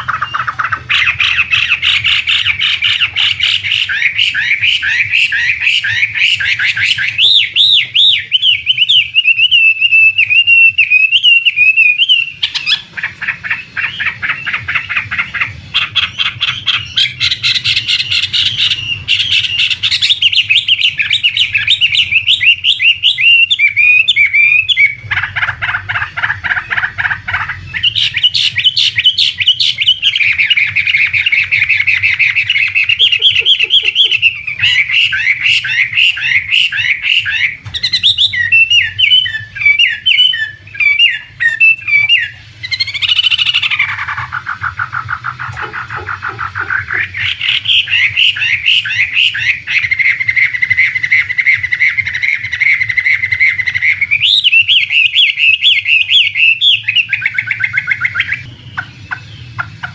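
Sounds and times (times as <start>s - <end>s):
bird singing whistled phrases: 0.0s - 12.9s, 15.8s - 25.3s, 27.7s - 45.1s, 46.6s - 59.6s.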